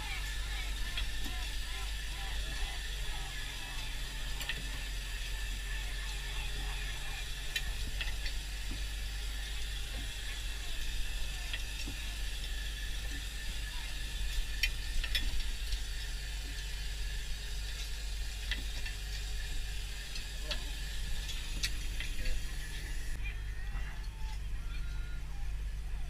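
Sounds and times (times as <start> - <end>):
line hauler humming: 0.0 - 11.9.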